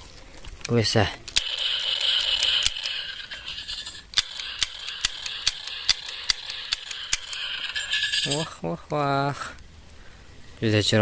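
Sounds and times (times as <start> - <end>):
toy pistol clicks: 0.6 - 7.8
high whirring hiss: 1.4 - 11.0.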